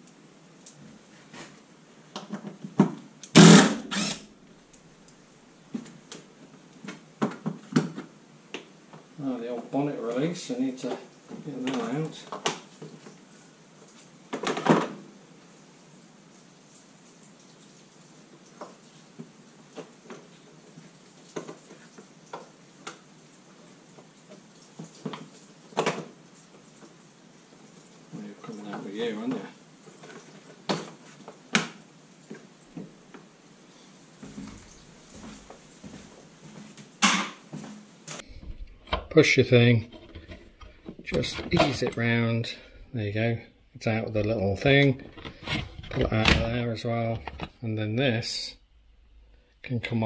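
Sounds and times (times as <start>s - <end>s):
loud noisy bursts: 3.4s - 4.2s.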